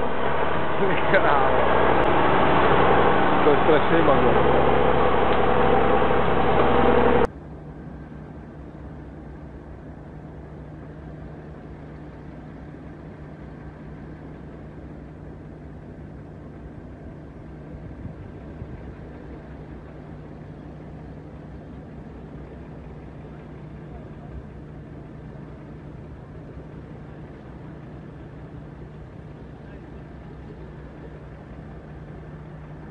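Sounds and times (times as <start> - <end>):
diesel truck engine idling: 0.0 - 7.3, 9.6 - 32.9
loud passage: 0.0 - 7.3.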